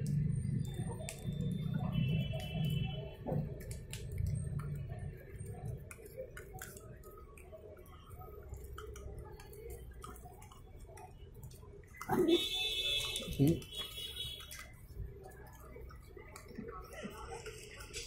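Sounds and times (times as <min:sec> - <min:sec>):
dogs chewing food: 0:03.6 - 0:12.4.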